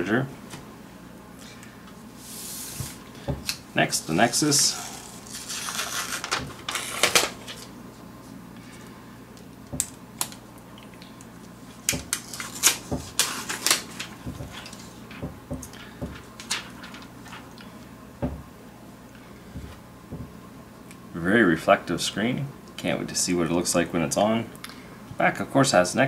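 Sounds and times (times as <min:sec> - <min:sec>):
plastic film crackling: 0:04.8 - 0:07.7, 0:11.8 - 0:15.0, 0:16.2 - 0:17.6.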